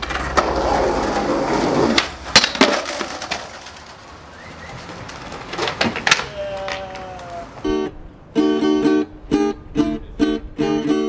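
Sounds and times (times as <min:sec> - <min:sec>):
skateboard wooden clacks: 0:00.0 - 0:07.6
skateboard rolling: 0:00.0 - 0:07.8.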